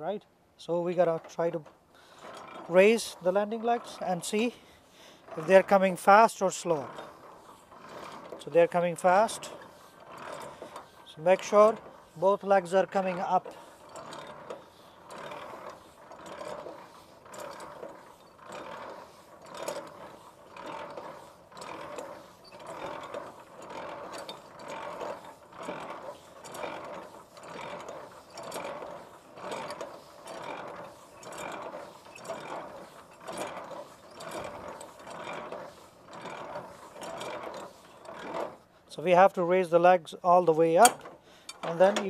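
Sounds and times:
hand crank gear noise with clicks: 5.2s - 38.6s, 40.7s - 42.0s.

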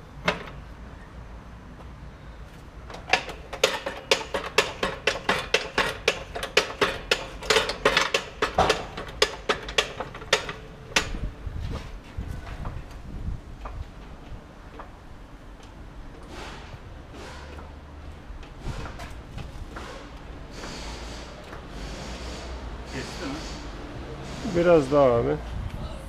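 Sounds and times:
hydraulic jack clicking and clanking: 0.2s - 0.7s, 2.5s - 11.8s, 13.6s - 24.7s.

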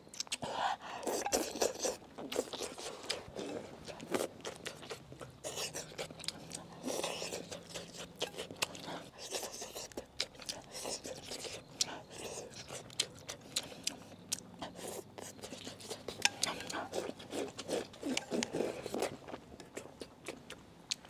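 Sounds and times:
person chewing food: 0.1s - 21.0s.

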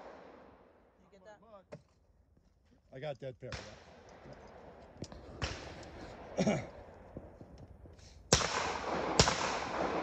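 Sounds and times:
shotgun shots with echo: 8.3s - 10.0s.

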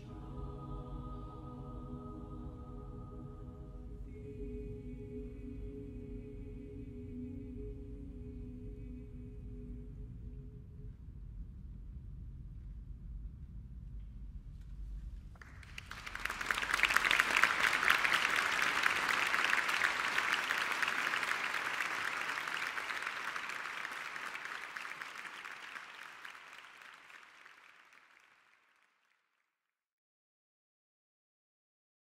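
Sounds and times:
low room rumble: 0.0s - 16.7s
audience applauding: 15.4s - 29.0s.

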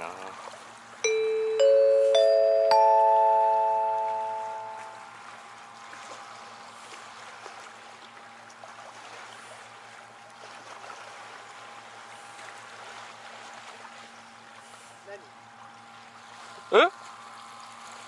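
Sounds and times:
faint steady hum: 1.0s - 5.1s
small waves lapping: 5.7s - 18.0s.

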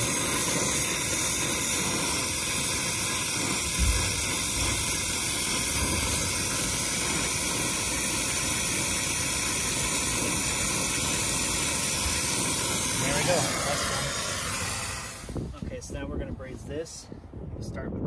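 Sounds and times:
torch flame hissing: 0.0s - 16.7s
low thump: 3.8s - 4.8s.

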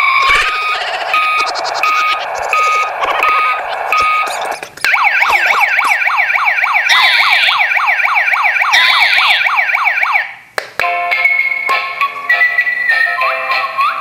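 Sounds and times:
repeating electronic beeping alarm: 0.0s - 10.3s
electronic yelp siren: 0.0s - 10.4s.

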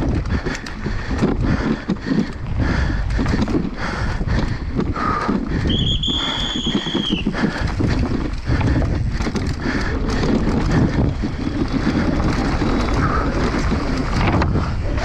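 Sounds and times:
bike tyres and frame rattling: 0.0s - 15.0s
wind on microphone: 0.0s - 15.0s
high steady squeal: 5.7s - 7.3s.

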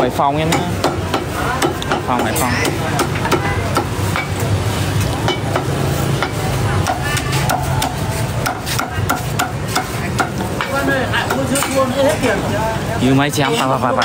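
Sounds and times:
cleaver chopping on wooden block: 5.3s - 11.8s.

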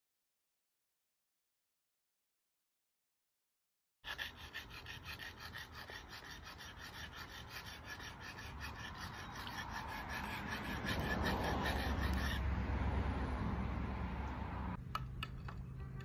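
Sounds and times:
hatchet blade rasping on whetstone: 4.0s - 12.5s.

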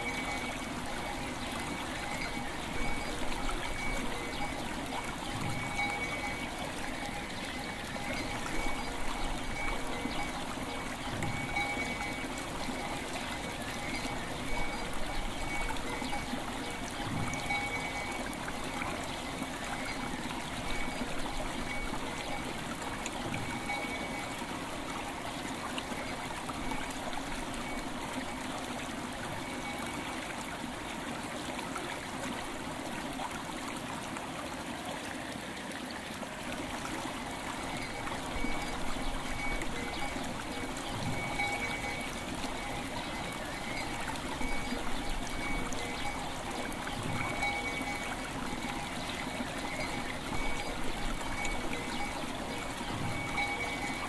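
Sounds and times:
river water flowing: 0.0s - 54.0s
bells ringing held tones: 5.4s - 6.6s, 11.2s - 13.0s, 53.0s - 54.0s.

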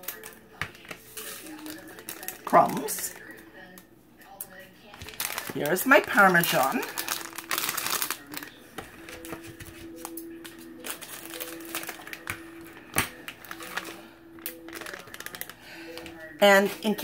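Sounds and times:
scissors snipping plastic: 0.0s - 2.4s
plastic packet handled: 0.0s - 3.8s, 4.8s - 16.2s.

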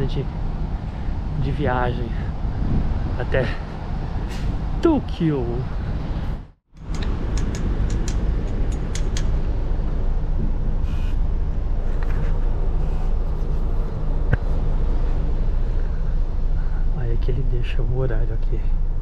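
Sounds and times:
bus engine humming: 0.0s - 19.0s
light clicks: 6.9s - 9.3s
sharp tick: 6.9s - 9.3s.

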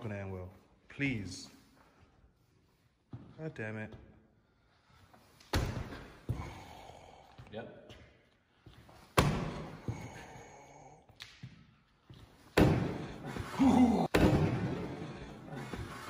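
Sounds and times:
man crying out in pain: 13.4s - 14.2s.

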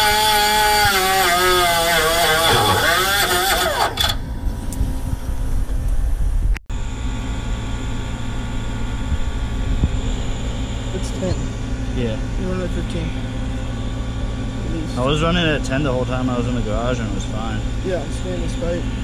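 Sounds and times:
power tool motor whining: 0.0s - 4.6s
low steady hum: 0.0s - 19.0s.

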